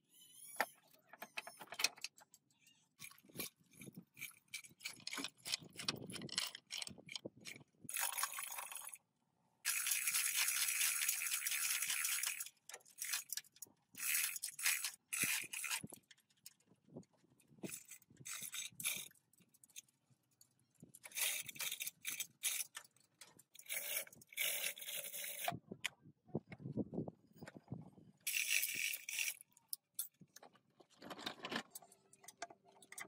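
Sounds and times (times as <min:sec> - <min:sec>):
chain hoist ratcheting: 0:03.0 - 0:09.0, 0:09.7 - 0:16.2, 0:17.6 - 0:19.9, 0:21.0 - 0:25.5, 0:28.3 - 0:30.2.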